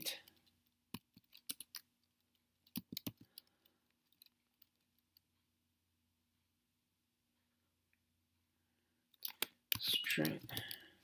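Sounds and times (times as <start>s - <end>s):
computer keyboard typing: 0.3s - 5.3s, 9.1s - 11.0s.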